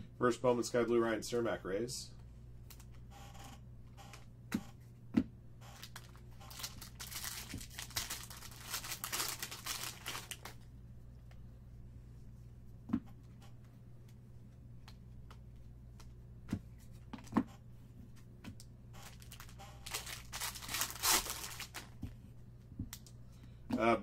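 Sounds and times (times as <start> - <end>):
foil wrapper crackling: 5.8 - 10.6, 19.0 - 22.0.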